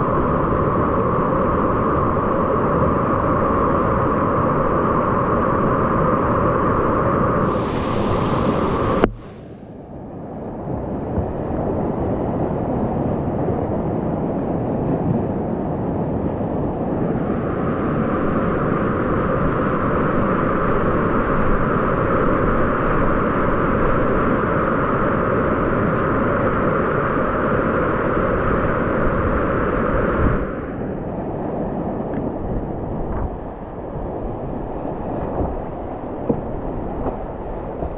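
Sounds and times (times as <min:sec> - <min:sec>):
river rapids rushing: 0:07.4 - 0:09.7.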